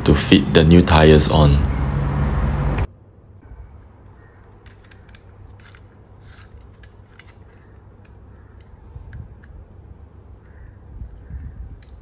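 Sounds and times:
blade scratching rubber tire: 0:04.6 - 0:07.8.

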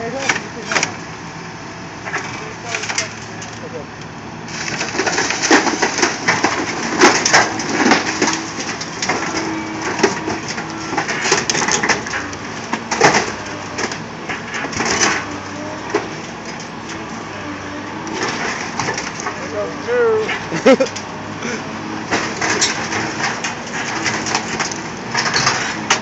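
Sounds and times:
excavator engine hum: 0:00.0 - 0:26.0
truck body crunching: 0:00.0 - 0:26.0.

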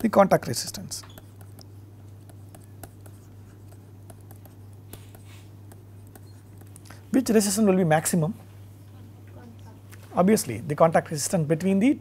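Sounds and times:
steady low hum: 0:00.0 - 0:12.0
pen scratching on paper: 0:01.1 - 0:06.7.

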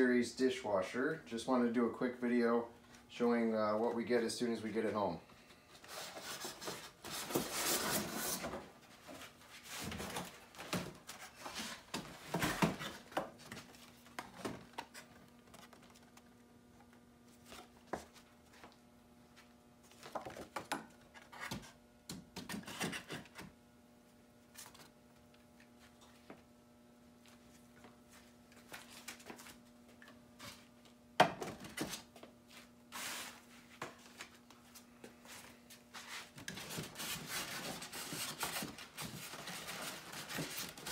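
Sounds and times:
rustles and scrapes of cardboard: 0:05.8 - 0:14.1, 0:32.5 - 0:40.9
box cutter cutting cardboard: 0:22.4 - 0:23.5.

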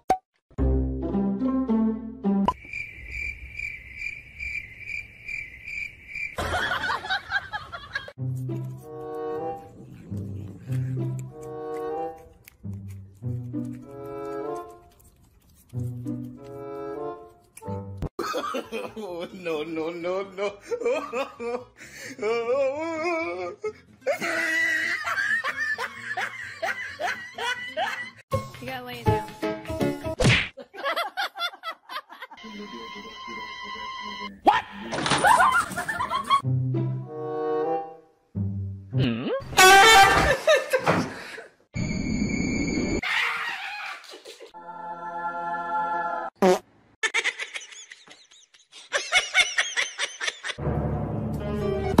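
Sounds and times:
cricket chirping: 0:02.5 - 0:07.2
person laughing: 0:18.2 - 0:28.2, 0:47.0 - 0:50.6.

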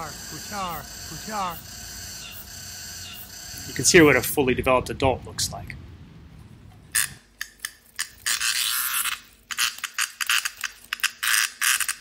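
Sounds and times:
cicada harsh buzzing: 0:00.0 - 0:04.2.

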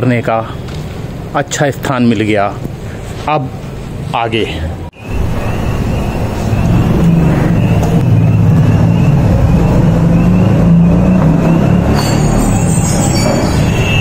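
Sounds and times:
low rumbling drone: 0:05.0 - 0:13.0.

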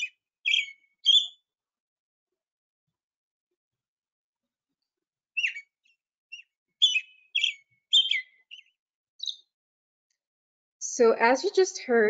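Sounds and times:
robin song whistled phrases: 0:00.0 - 0:01.4, 0:05.4 - 0:05.7, 0:06.3 - 0:09.4.

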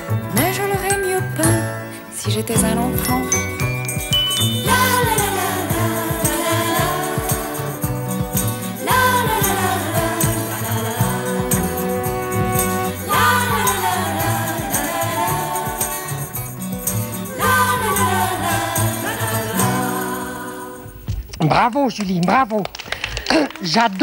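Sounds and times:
band playing instrumental: 0:03.0 - 0:18.6.

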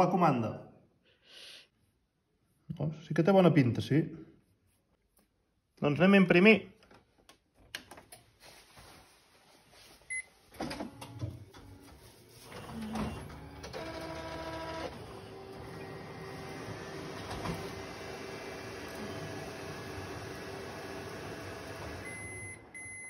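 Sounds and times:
printer clicks and clunks: 0:10.6 - 0:11.8, 0:12.5 - 0:22.7
printer motor whirring: 0:12.4 - 0:22.2.

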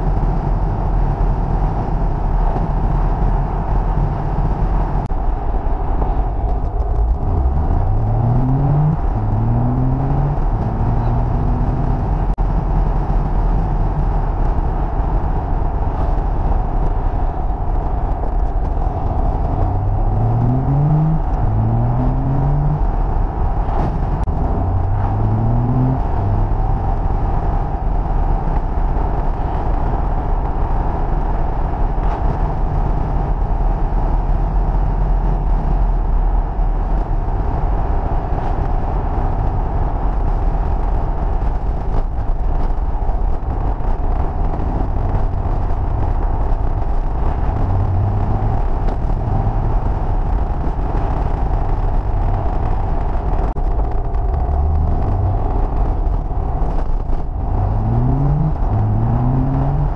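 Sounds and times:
car engine accelerating: 0:00.0 - 0:59.9
road and wind noise: 0:00.0 - 0:59.9.

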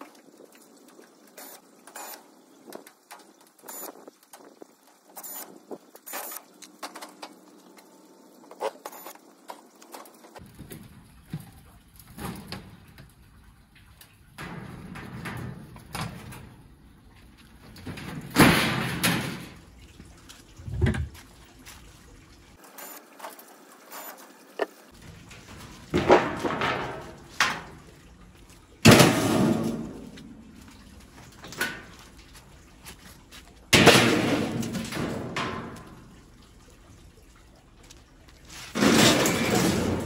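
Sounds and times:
sheet metal clattering and scraping: 0:14.4 - 0:16.7, 0:17.6 - 0:19.7, 0:24.9 - 0:28.0, 0:28.8 - 0:32.3, 0:33.8 - 0:36.1, 0:38.6 - 0:40.0.

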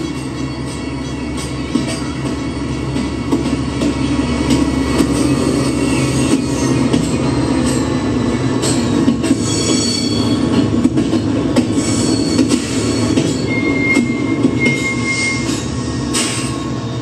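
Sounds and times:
passenger train rumbling: 0:00.0 - 0:17.0
high wheel squeals: 0:05.2 - 0:10.5, 0:11.7 - 0:17.0.

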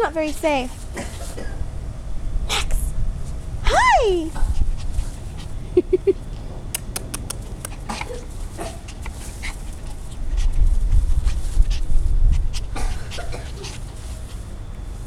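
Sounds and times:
low rumbling on microphone: 0:00.0 - 0:15.0.

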